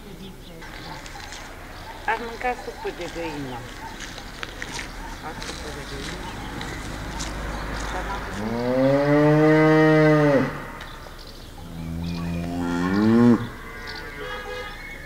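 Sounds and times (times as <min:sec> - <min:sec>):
cows mooing: 0:04.5 - 0:15.0.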